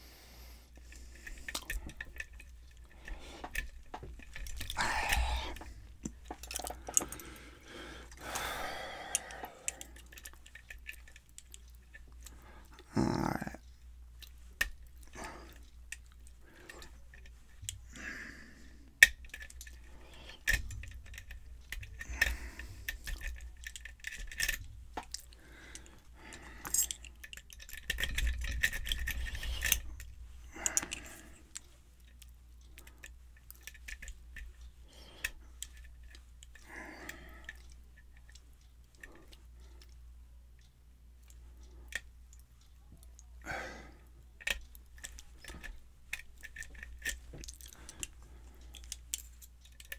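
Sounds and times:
lock pick clicking and scratching: 0.8 - 7.4, 9.1 - 12.9, 18.9 - 34.6, 35.2 - 36.6, 44.4 - 49.9.

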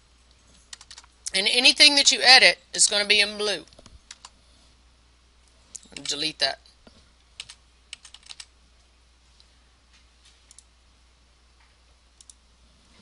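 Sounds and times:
keyboard keystrokes: 0.7 - 1.1, 7.4 - 8.5.

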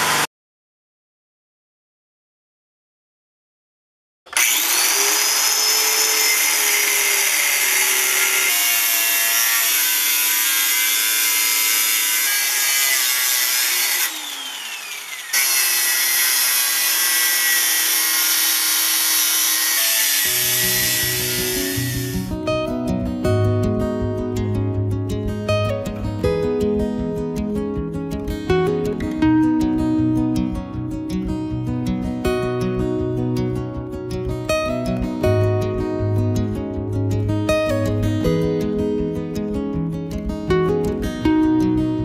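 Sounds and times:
angle grinder cutting metal: 0.0 - 0.3, 4.3 - 22.4
acoustic guitar music: 20.2 - 42.0.

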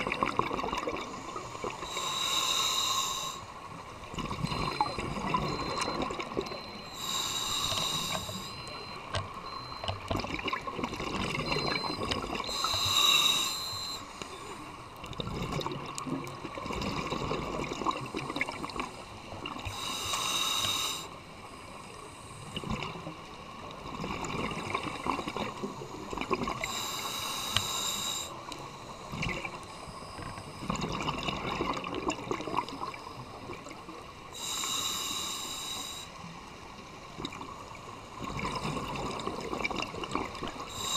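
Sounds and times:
underwater exhaled bubbles: 0.0 - 2.3, 3.0 - 21.1, 22.4 - 34.7, 37.0 - 40.9
regulator bubbling hiss: 0.0 - 3.5, 6.9 - 8.5, 11.1 - 14.1, 19.6 - 21.1, 24.5 - 36.1, 37.6 - 40.9.

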